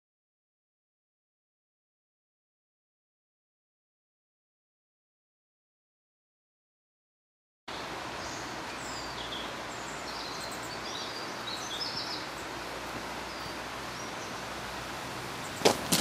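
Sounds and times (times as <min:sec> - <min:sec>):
small birds chirping: 0:07.7 - 0:16.0.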